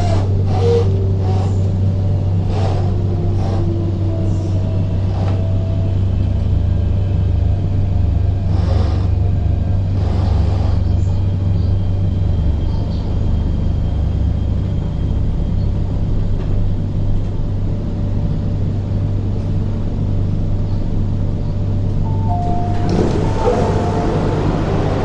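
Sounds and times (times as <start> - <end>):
train car humming: 0.0 - 25.0
two-tone door chime: 22.1 - 25.0.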